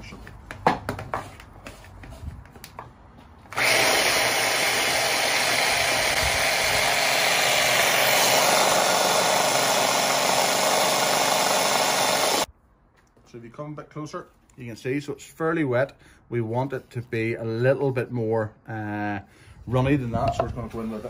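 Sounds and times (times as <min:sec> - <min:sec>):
electric hand blender running: 0:03.5 - 0:12.5.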